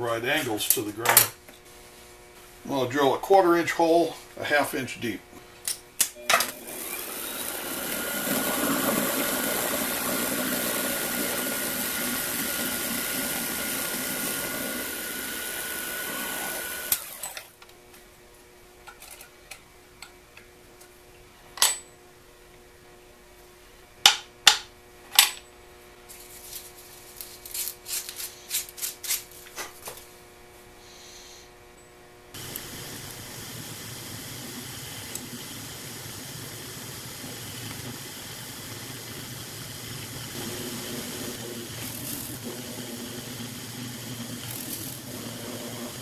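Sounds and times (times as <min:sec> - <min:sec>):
lathe motor whining: 0:06.4 - 0:17.5, 0:32.4 - 0:46.0.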